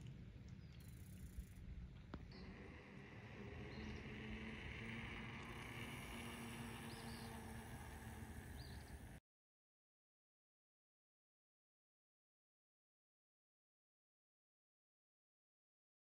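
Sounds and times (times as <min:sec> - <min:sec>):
faint high chirps: 0:02.2 - 0:09.2.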